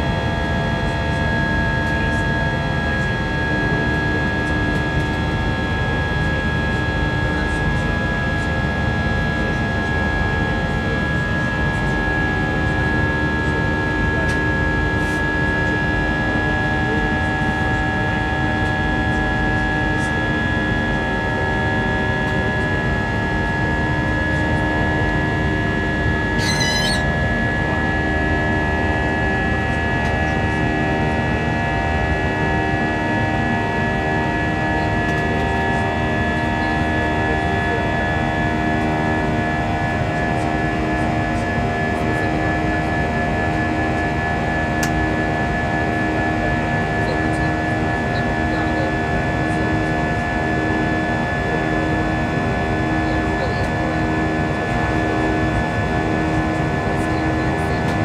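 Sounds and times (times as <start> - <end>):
jet engines droning in cabin: 0.0 - 58.0
brief high-pitched sound: 26.4 - 27.1.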